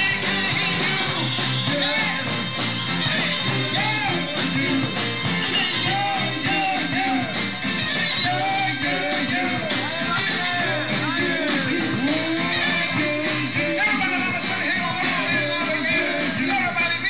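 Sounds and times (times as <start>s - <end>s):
drum kit: 0.0s - 17.0s
electric guitars: 0.0s - 17.0s
person singing: 0.0s - 17.0s.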